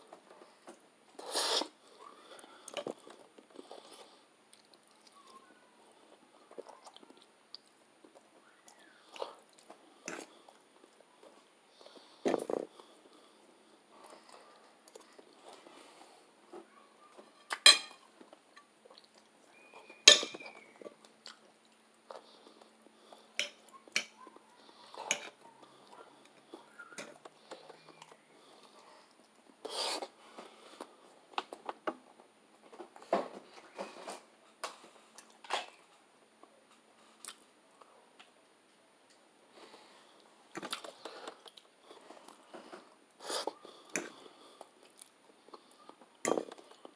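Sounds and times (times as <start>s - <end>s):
quiet chewing: 0.1s - 31.8s, 34.7s - 46.9s
cutlery clinking on a plate: 17.5s - 18.0s, 20.0s - 20.6s.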